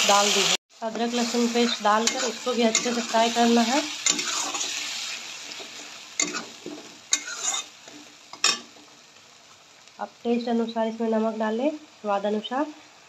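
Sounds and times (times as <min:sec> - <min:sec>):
paste sizzling in hot oil: 0:00.0 - 0:13.0
wooden spatula scraping pan: 0:05.5 - 0:08.0.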